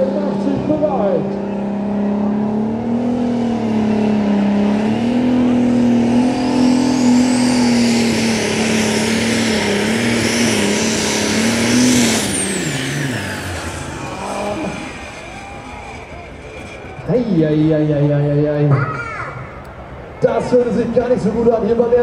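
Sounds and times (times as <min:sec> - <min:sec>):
tractor engine running flat out: 0:00.0 - 0:18.3
high turbo whistle: 0:09.6 - 0:17.1.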